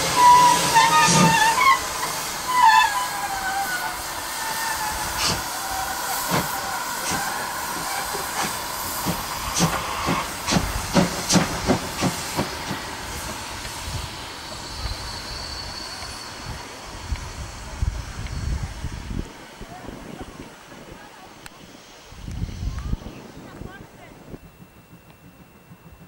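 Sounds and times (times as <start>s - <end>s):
steam whistle: 0.0s - 8.2s
steam hissing from drain cocks: 0.0s - 22.7s
steam locomotive exhaust chuffs: 0.0s - 26.0s.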